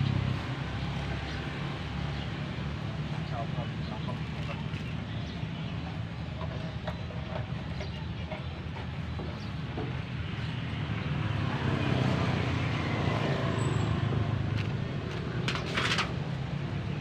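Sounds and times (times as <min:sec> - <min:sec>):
vehicle engine rumble: 0:00.0 - 0:17.0.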